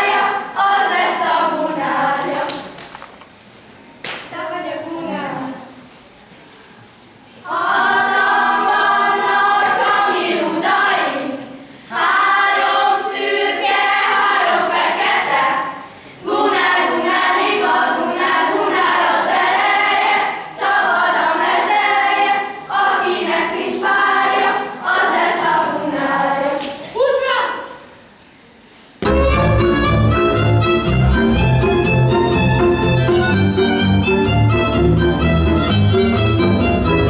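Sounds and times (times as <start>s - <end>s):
choir singing: 0.0s - 2.7s, 7.4s - 26.8s.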